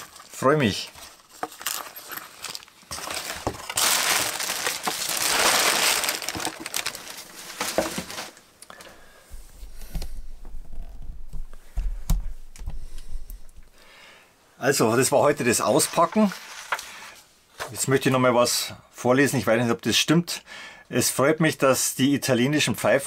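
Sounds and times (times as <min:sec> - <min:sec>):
tissue paper and cardboard crinkling: 0:00.0 - 0:08.4, 0:15.4 - 0:17.0.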